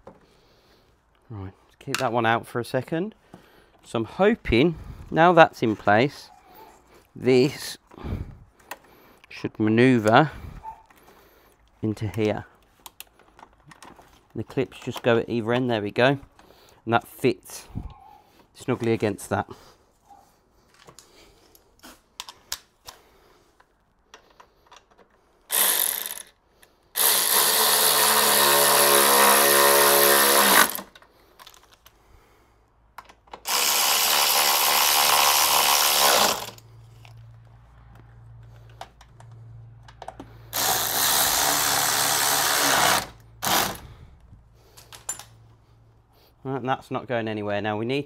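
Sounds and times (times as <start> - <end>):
tool handling clicks: 10.8 - 16.8, 20.7 - 26.8, 30.5 - 32.0, 32.9 - 33.5, 36.3 - 40.8, 43.2 - 45.5
cordless power driver: 25.5 - 26.3, 27.0 - 31.0, 33.4 - 37.2, 40.1 - 44.3.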